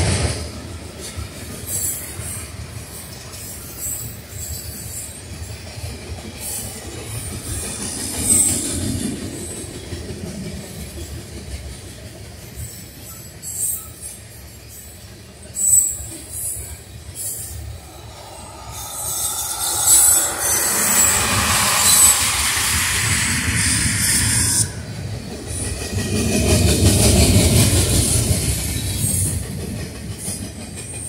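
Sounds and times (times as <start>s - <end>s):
train wheels rumbling on rail: 0.0s - 31.0s
high-pitched wheel squeals: 15.6s - 25.8s.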